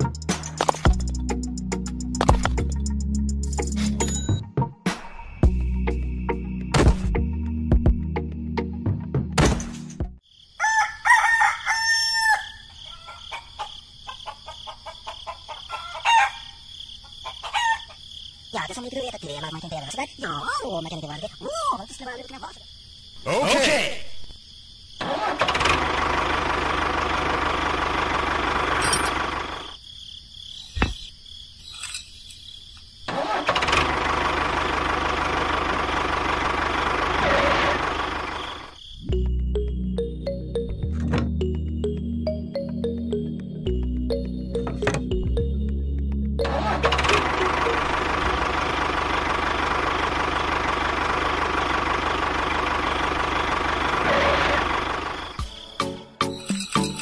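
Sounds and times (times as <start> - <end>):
tractor engine running: 25.0 - 29.8, 33.1 - 55.6.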